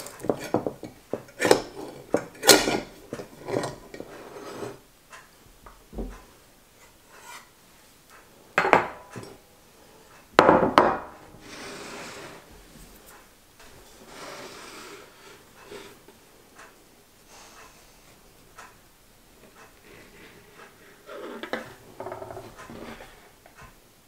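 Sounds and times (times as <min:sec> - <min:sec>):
metal spatula scraping glass dish: 0:01.4 - 0:04.8.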